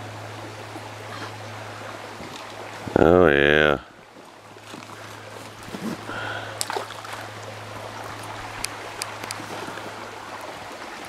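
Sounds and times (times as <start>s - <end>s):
fish splashing into water: 6.3s - 7.3s.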